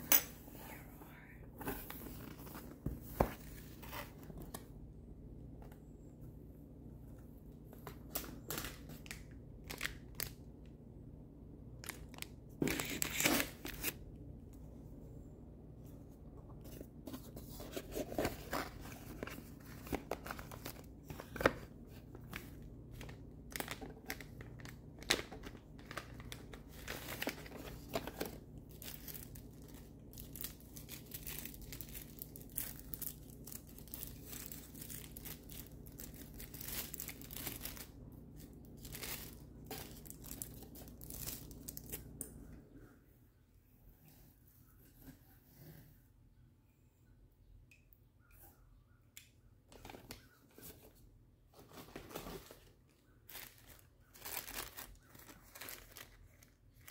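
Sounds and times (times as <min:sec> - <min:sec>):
faint low hum: 0:00.0 - 0:56.9
packing material crinkling: 0:07.9 - 0:10.5, 0:17.2 - 0:42.2, 0:51.7 - 0:56.9.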